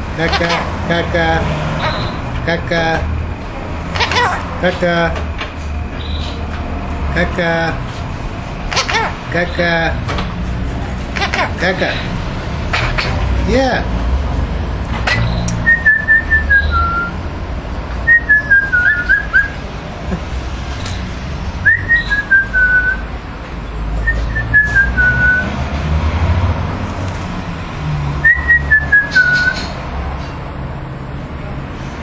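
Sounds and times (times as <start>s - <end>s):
whistled descending phrase: 15.6s - 17.2s.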